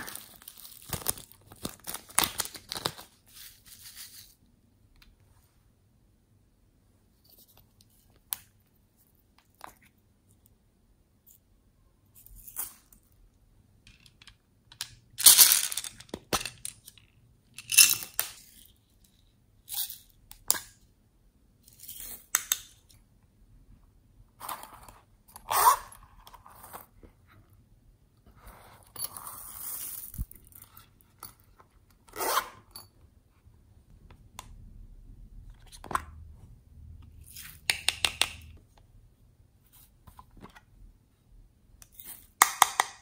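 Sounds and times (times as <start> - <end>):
plastic toys rustling and clicking: 13.9 - 18.6.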